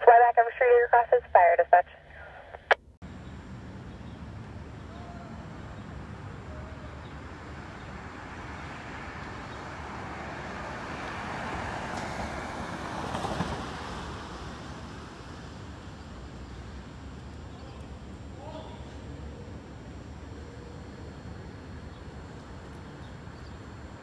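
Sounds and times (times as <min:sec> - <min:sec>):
traffic noise: 0:00.0 - 0:24.0
vehicle passing: 0:03.4 - 0:15.4.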